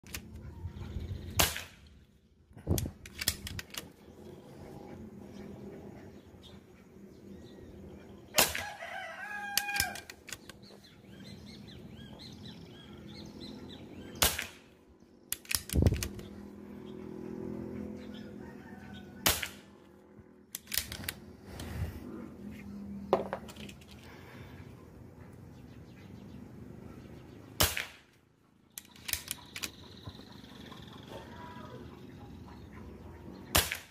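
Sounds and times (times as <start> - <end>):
air rifle shots: 1.3 - 2.0, 8.4 - 8.8, 14.2 - 14.8, 19.2 - 19.8, 27.6 - 28.2, 33.5 - 33.9
bird calls: 3.8 - 20.0, 28.4 - 33.9.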